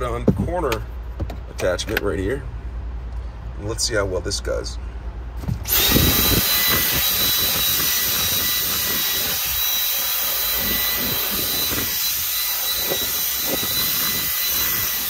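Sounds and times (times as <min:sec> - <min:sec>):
vacuum cleaner whining: 0:05.7 - 0:15.0.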